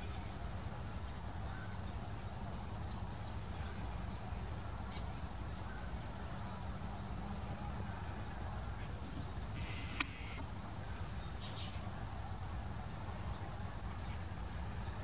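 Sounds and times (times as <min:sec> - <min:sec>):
faint high bird chirps: 0:09.2 - 0:10.5.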